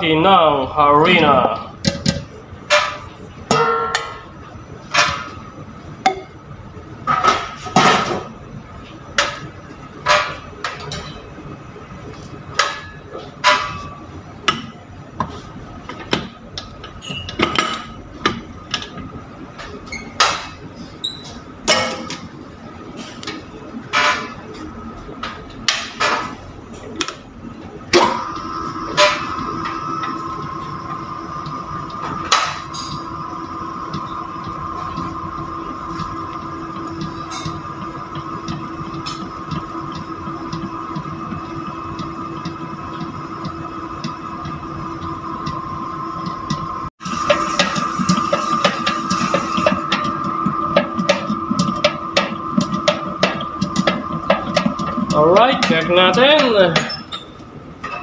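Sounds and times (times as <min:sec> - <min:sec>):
sharp knocks of mixer: 0:47.3 - 0:57.0.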